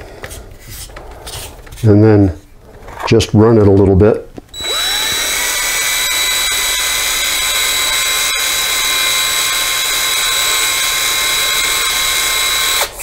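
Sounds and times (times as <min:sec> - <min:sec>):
cordless drill whining: 0:04.5 - 0:13.0.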